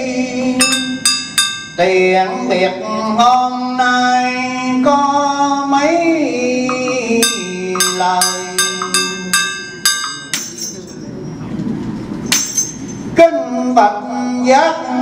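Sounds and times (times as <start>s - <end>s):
metal percussion strikes ringing: 0.6s - 2.1s, 6.7s - 11.4s, 12.2s - 13.2s
man chanting: 13.2s - 15.0s.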